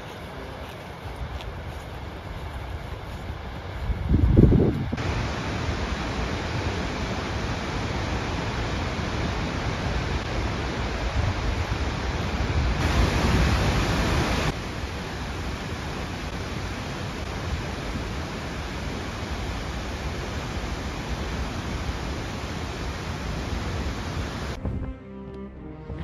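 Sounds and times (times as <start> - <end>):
waterfall roaring: 4.9 - 24.6.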